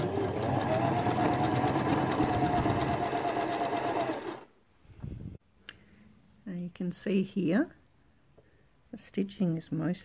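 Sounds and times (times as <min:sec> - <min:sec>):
sewing machine running: 0:00.0 - 0:04.5.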